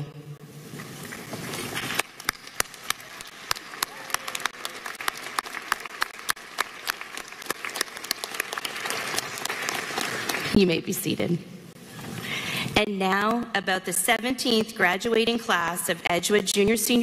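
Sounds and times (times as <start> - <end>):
crowd applauding: 1.0 - 10.6.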